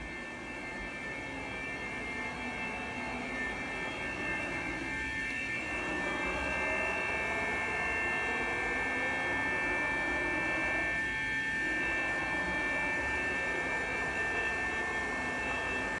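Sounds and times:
high-pitched whining tones: 0.0s - 16.0s
machinery hum: 0.0s - 16.0s.

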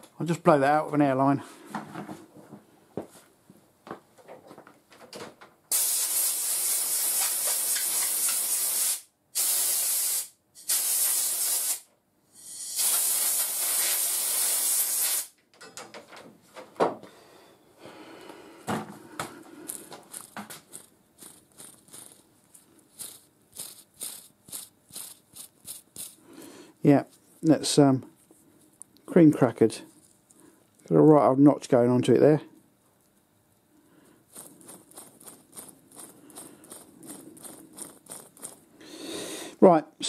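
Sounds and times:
air blow gun hissing: 5.7s - 11.8s, 12.4s - 15.3s.

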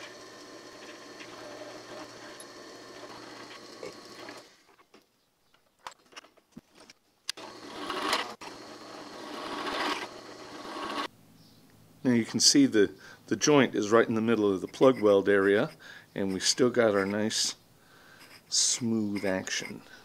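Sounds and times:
drill press drilling into steel: 0.0s - 4.5s.

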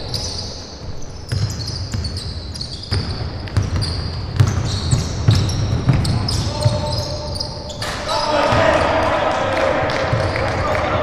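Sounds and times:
shoes squeaking on floor: 0.0s - 8.4s
basketball bouncing on hardwood: 2.9s - 6.8s.

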